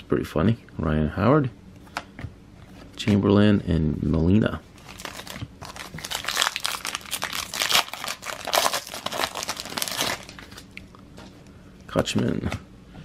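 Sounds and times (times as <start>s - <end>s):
foil wrapper crinkling: 4.8s - 10.8s.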